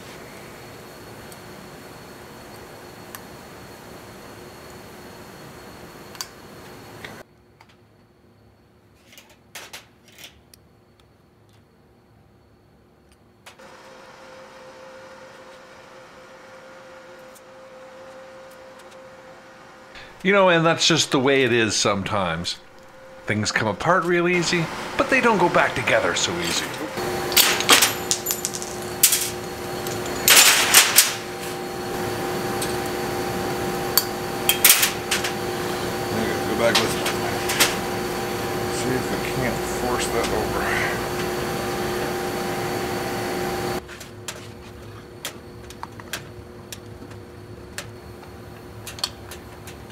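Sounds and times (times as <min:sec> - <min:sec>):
faint steady hum: 0:14.7 - 0:43.8
metal parts clicking on workbench: 0:27.3 - 0:31.2.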